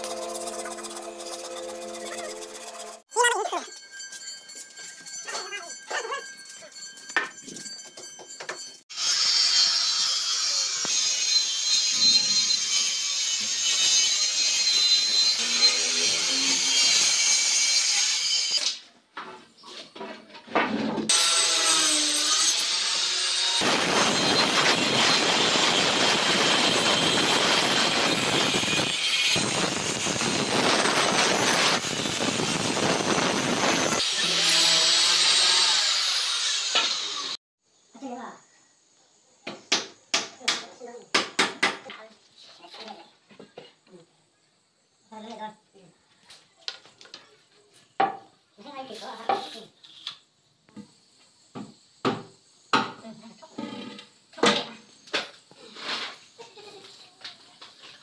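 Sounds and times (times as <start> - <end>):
power tool cutting timber: 0.0 - 3.1, 8.9 - 18.8, 21.1 - 37.4.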